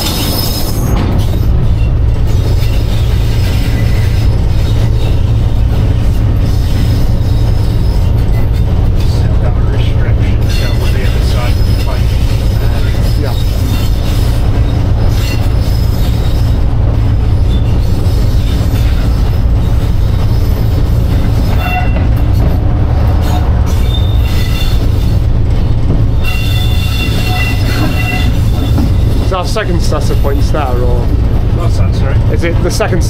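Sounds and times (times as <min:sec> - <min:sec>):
diesel locomotive engine rumble: 0:00.0 - 0:33.0
thin high squeals: 0:23.2 - 0:25.2, 0:26.2 - 0:29.1.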